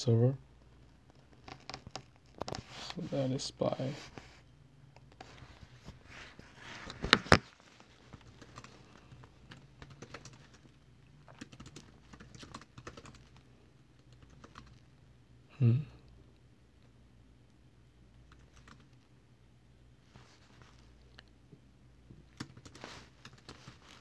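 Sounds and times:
typing on laptop keyboard: 0:01.3 - 0:02.5, 0:08.0 - 0:14.8, 0:18.3 - 0:19.0, 0:22.3 - 0:24.0
low humming voice: 0:15.5 - 0:16.1.

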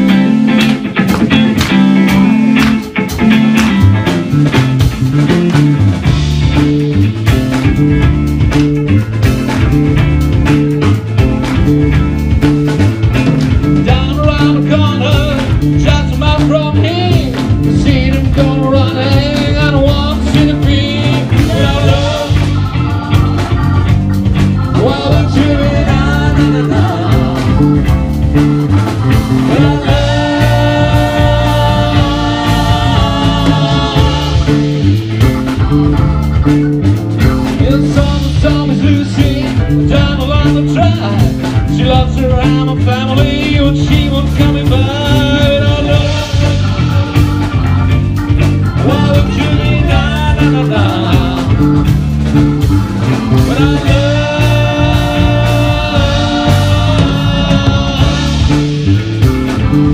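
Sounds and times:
live blues-rock band playing: 0:00.0 - 0:59.9
person singing: 0:13.7 - 0:36.5, 0:37.4 - 0:52.1, 0:53.1 - 0:59.0.

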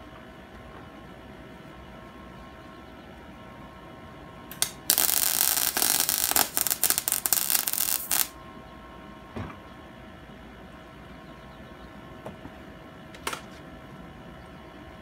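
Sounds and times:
welder arc crackling: 0:04.5 - 0:08.4.

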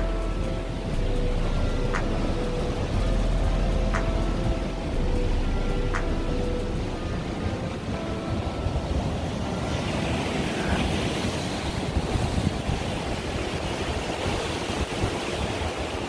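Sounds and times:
wind rumbling on microphone: 0:00.0 - 0:16.0
sea waves breaking on rocks: 0:07.5 - 0:16.0.

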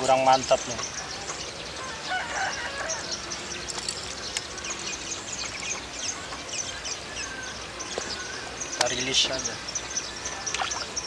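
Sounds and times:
rooster crowing: 0:01.8 - 0:03.2.

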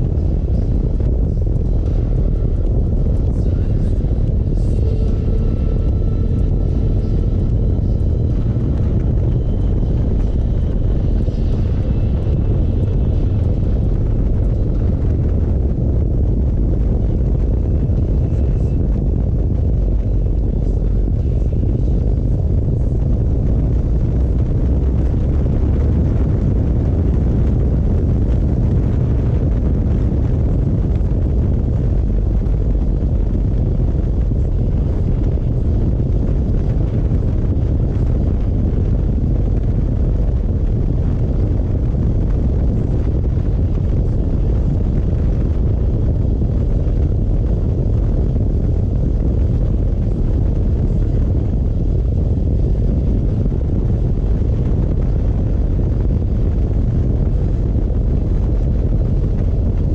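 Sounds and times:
motorcycle engine running: 0:00.0 - 0:41.7
wind rumble on microphone: 0:00.0 - 0:59.9.

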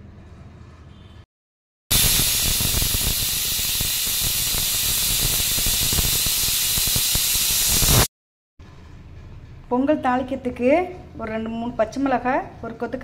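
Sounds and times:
pressure cooker steam hissing: 0:01.9 - 0:08.1.

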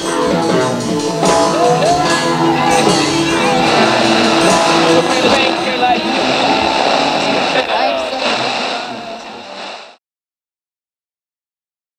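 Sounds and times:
held chords: 0:00.0 - 0:09.6
voice-like gliding tones: 0:00.2 - 0:10.0.

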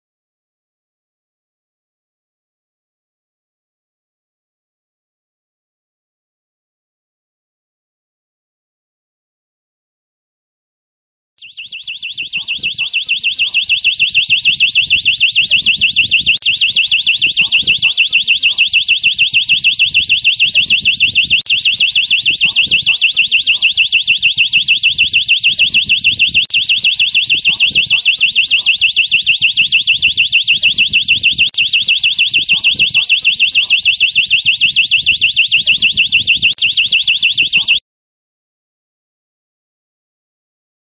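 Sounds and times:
high-pitched pulsing electronic alarm: 0:11.4 - 0:37.8.

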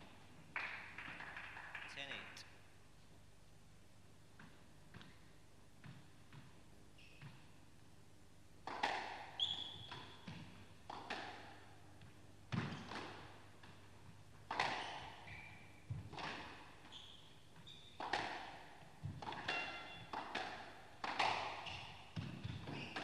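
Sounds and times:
squash ball hitting rackets and walls: 0:04.4 - 0:07.5, 0:08.6 - 0:23.0
shoes squeaking on floor: 0:07.0 - 0:07.6, 0:09.4 - 0:10.4, 0:14.7 - 0:15.9, 0:16.8 - 0:18.0, 0:21.6 - 0:23.0.

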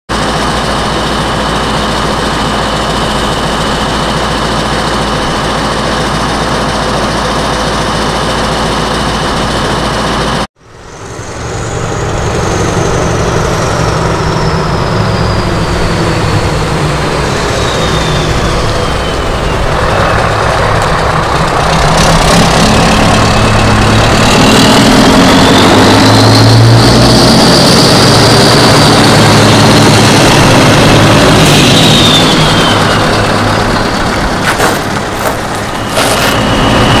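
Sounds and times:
truck diesel engine: 0:00.1 - 0:37.0
high whistle: 0:17.2 - 0:20.1, 0:31.3 - 0:33.2.

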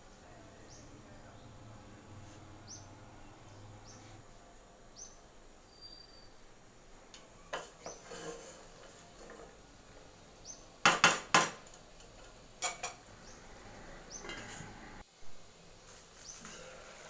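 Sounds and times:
spatula scraping metal pot: 0:07.5 - 0:09.5, 0:12.6 - 0:15.0.

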